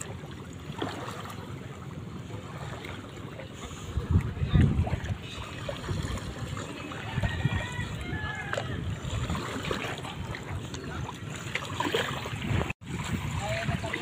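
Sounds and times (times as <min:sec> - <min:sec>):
water lapping at shoreline: 0:00.0 - 0:14.0
wind rumbling on microphone: 0:03.6 - 0:14.0.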